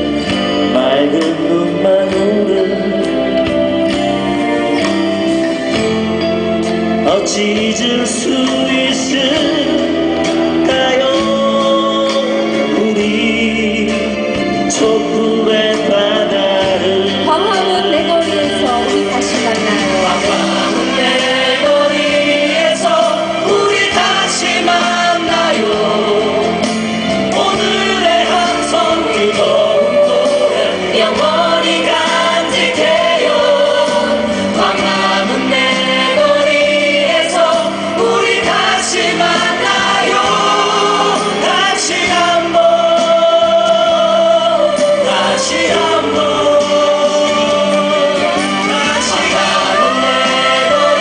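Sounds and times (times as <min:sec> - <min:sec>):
group singing: 0:00.0 - 0:51.0
live band playing: 0:00.0 - 0:51.0.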